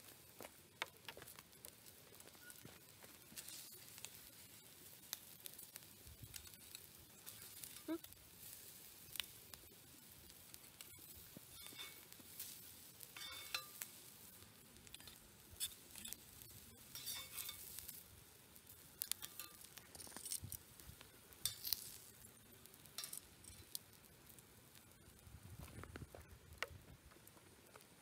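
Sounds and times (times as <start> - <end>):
food frying on a griddle: 0.0 - 28.0
metal spatula scraping and clinking: 11.5 - 12.0, 13.2 - 13.8, 14.9 - 18.0, 19.0 - 20.5, 21.4 - 22.1, 23.0 - 23.8.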